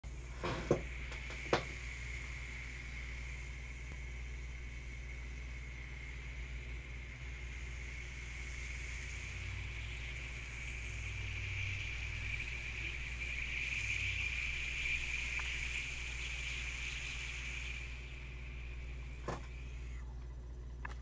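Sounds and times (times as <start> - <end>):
carbonated water fizzing in bottle: 7.8 - 20.0.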